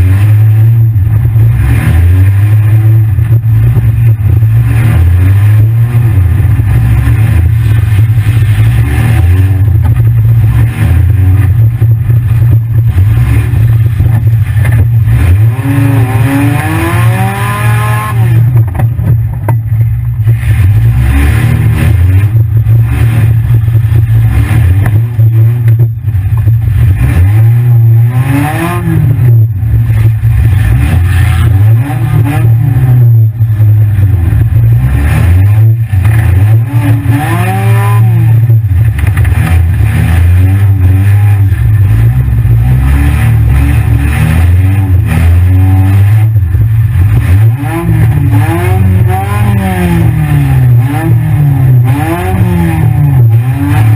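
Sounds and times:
car engine revving: 0.0 - 53.9.

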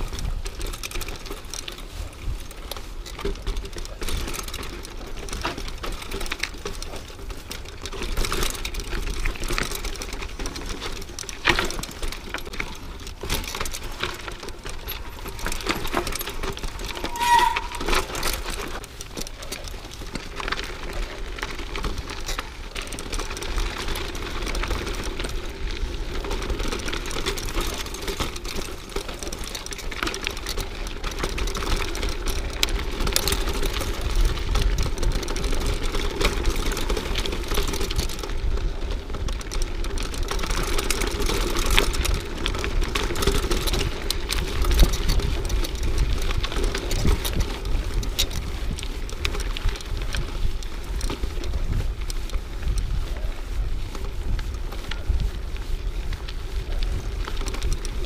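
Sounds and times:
tyres rolling on dirt: 0.0 - 17.1, 17.8 - 58.0
bike frame rattling and clicking: 0.0 - 58.0
brief high squeak: 16.6 - 18.7.

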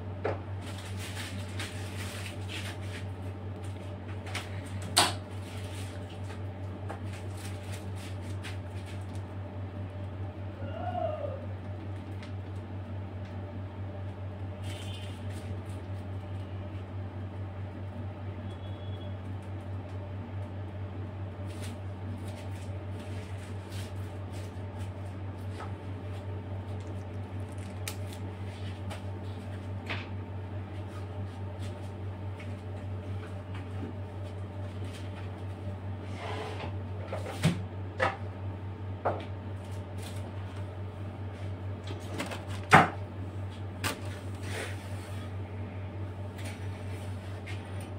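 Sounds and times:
steady low hum: 0.0 - 47.9
piping bag squishy rustles: 0.6 - 9.4, 21.4 - 29.6.

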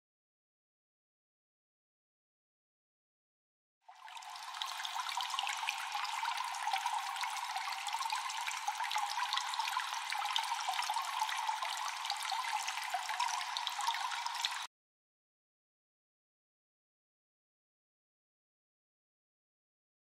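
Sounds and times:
seawater trickling in tide pool: 3.9 - 14.7.

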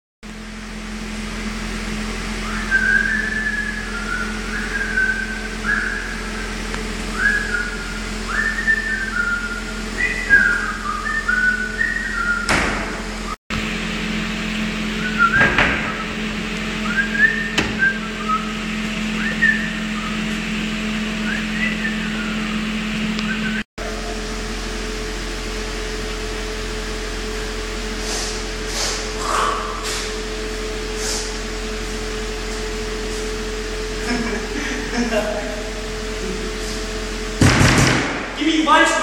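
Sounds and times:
steady low hum: 0.3 - 39.0
person whistling a tune: 2.4 - 6.3, 7.1 - 12.5, 16.8 - 18.5, 19.2 - 20.2, 21.2 - 22.5
sharp knocks: 12.5 - 13.0, 37.4 - 38.3.

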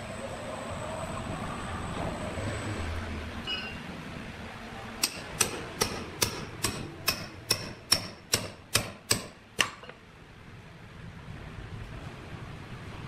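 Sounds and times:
hammer striking metal spike: 5.0 - 10.0.

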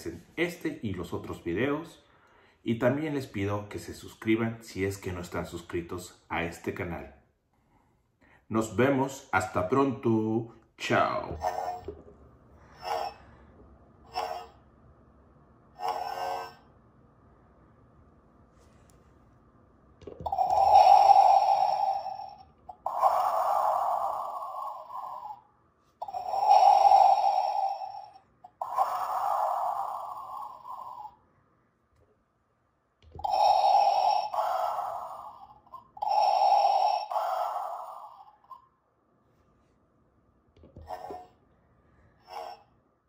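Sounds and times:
electronic respirator breathing: 11.3 - 14.6, 15.7 - 16.7, 20.2 - 31.2, 33.0 - 38.6, 40.7 - 41.4, 42.0 - 42.7.

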